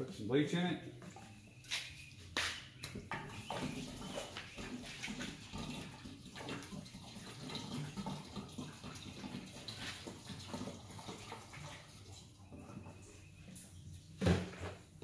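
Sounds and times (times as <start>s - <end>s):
liquid pouring from jug: 3.3s - 12.7s.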